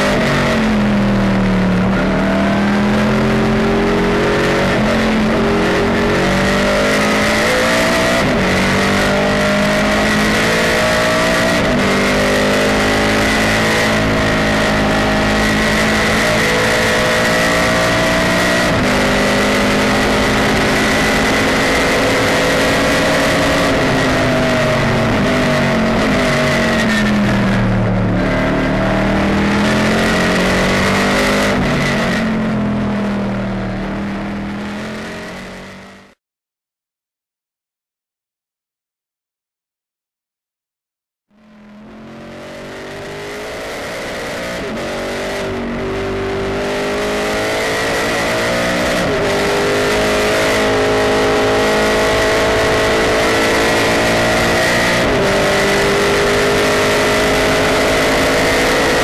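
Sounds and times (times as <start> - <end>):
steady high whine: 0.0 - 8.4
race car engine accelerating: 0.0 - 36.2, 41.4 - 59.0.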